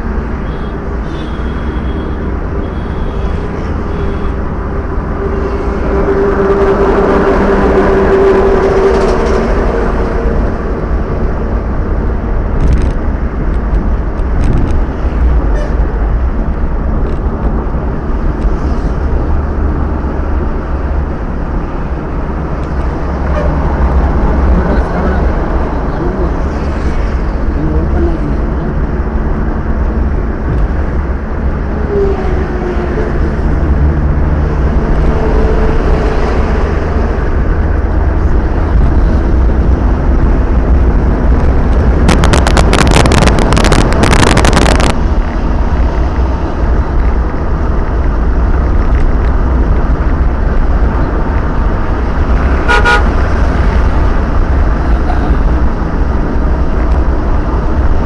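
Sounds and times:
car road and engine rumble: 0.0 - 58.0
vehicle horn toot: 0.4 - 4.4, 52.6 - 53.2
crackling burst: 41.9 - 45.0.

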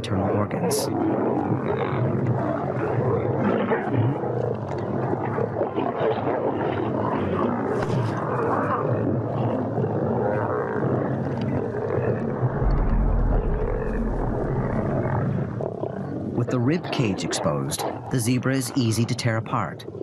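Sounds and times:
lions growling and snarling: 0.6 - 16.6.

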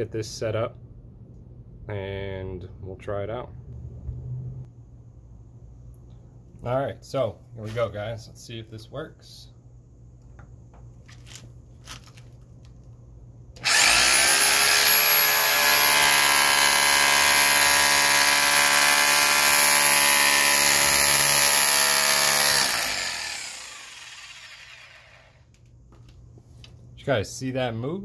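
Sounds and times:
motor winding down: 13.6 - 25.4.

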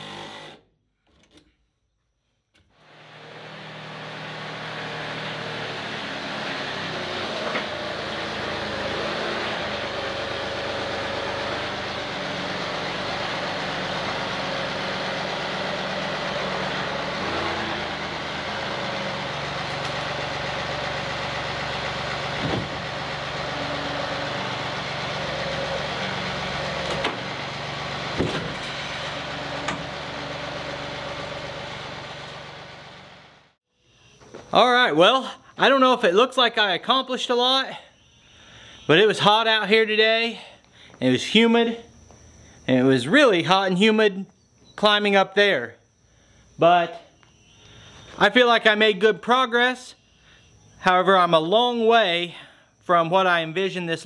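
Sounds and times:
engine running: 2.7 - 33.6.

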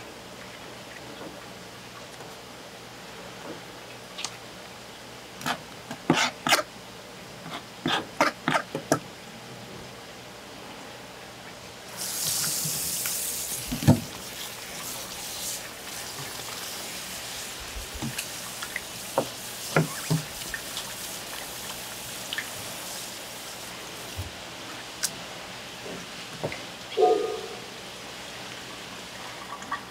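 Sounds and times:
running water: 9.7 - 29.9.

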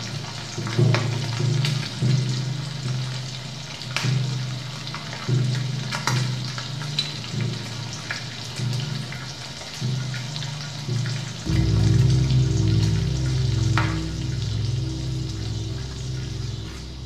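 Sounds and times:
fried food sizzling and crackling: 0.0 - 17.0
low drone: 11.5 - 17.0.

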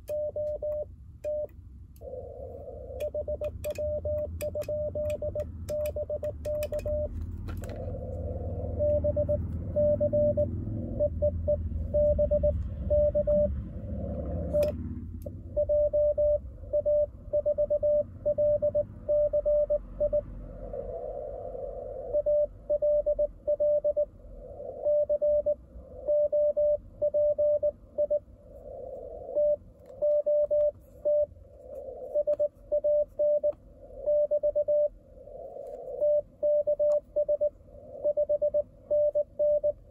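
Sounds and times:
sharp clicks: 2.9 - 7.8
morse code tone: 3.0 - 7.2, 8.6 - 13.7, 15.5 - 20.2, 29.3 - 31.3, 32.1 - 34.9, 36.0 - 39.9.

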